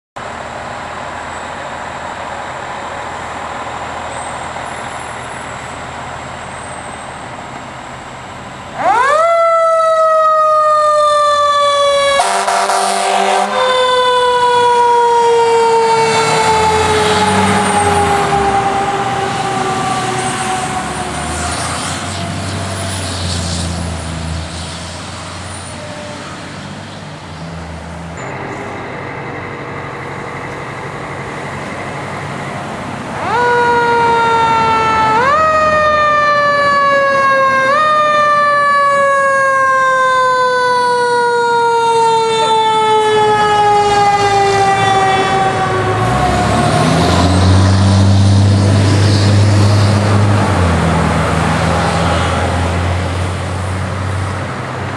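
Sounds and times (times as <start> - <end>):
engine rumble: 0.2 - 12.2, 13.3 - 54.9
fire truck siren: 8.0 - 26.7, 27.3 - 54.9
ladder truck siren: 8.6 - 24.4, 28.2 - 54.4.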